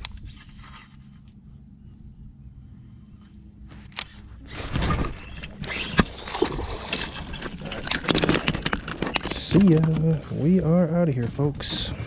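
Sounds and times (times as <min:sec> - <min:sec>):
fish thrashing and splashing: 0:04.6 - 0:09.4.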